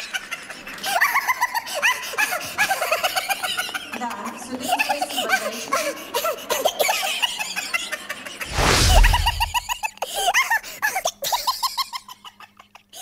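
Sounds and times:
whoosh with deep boom: 0:08.5 - 0:09.8.

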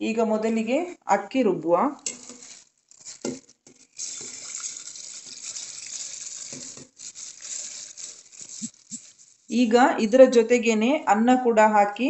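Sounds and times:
grains sliding on metal: 0:02.0 - 0:09.6.

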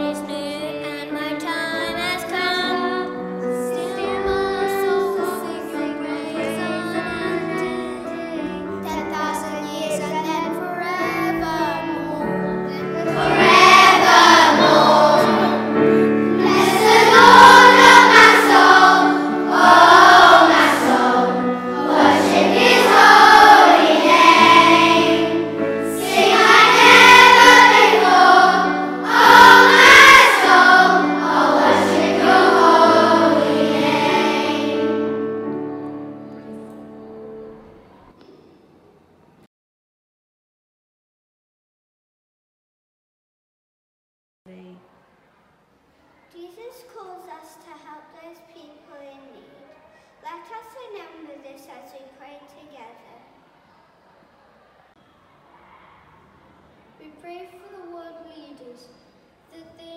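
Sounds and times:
children's choir singing: 0:01.6 - 0:08.5, 0:12.7 - 0:36.2
instrumental accompaniment: 0:12.0 - 0:38.0.

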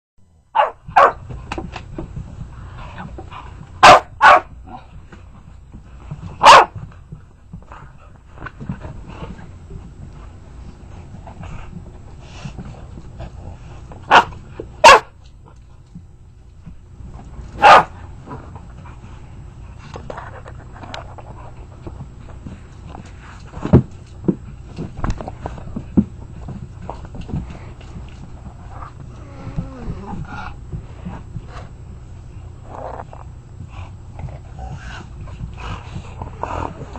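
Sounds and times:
dogs barking in play: 0:00.5 - 0:01.5, 0:02.9 - 0:05.4, 0:06.2 - 0:07.0, 0:13.8 - 0:15.3, 0:17.4 - 0:18.5
padding paws: 0:00.6 - 0:36.9
dogs scuffling on carpet: 0:00.9 - 0:36.9.

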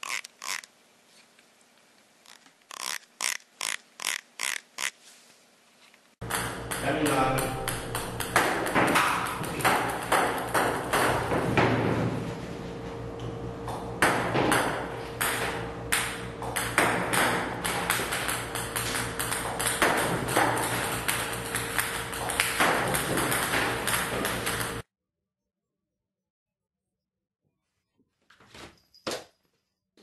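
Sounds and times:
ping-pong balls bouncing on table: 0:06.2 - 0:11.7, 0:14.0 - 0:24.8.

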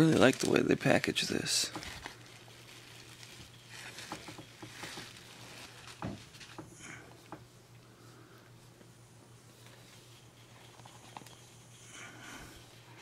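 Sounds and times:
bubble wrap crinkling: 0:00.0 - 0:06.8.

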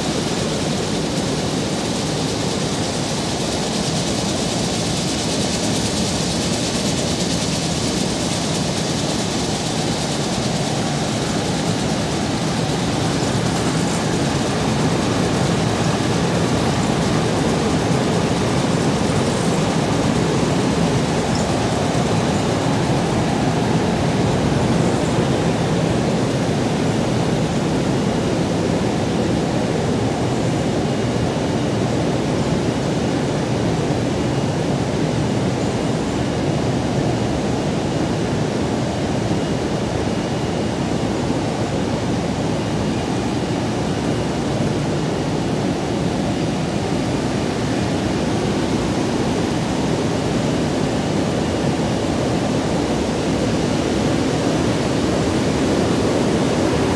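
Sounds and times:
factory machinery rushing noise: 0:00.0 - 0:32.8.

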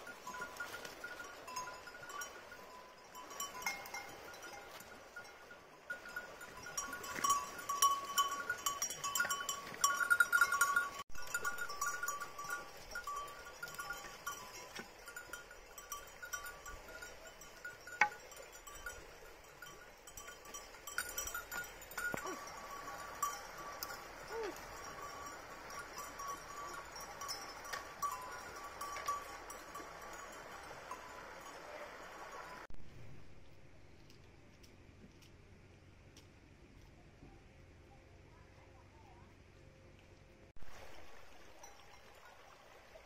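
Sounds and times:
goat bells clinking: 0:00.0 - 0:32.7.

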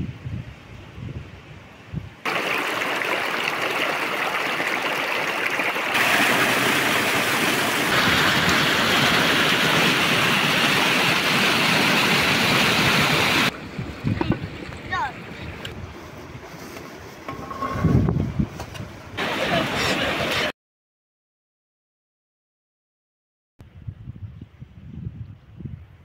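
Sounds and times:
rushing river water: 0:02.2 - 0:13.5, 0:19.2 - 0:20.5.

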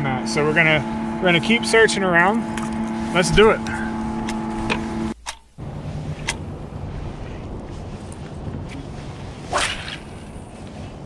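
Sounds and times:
fishing rod swishing: 0:08.8 - 0:10.6.

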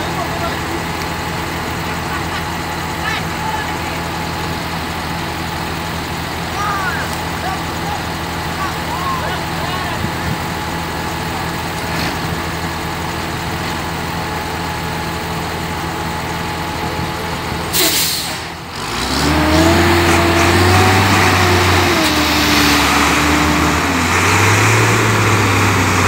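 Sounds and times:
tractor diesel engines labouring: 0:00.0 - 0:26.0
brief hiss: 0:17.8 - 0:18.5.

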